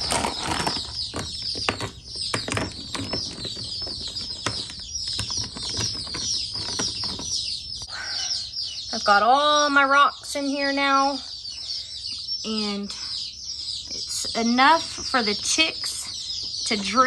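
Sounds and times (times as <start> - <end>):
rocks knocking in plastic tray: 0.0 - 7.4
baby chicks peeping: 0.0 - 17.0.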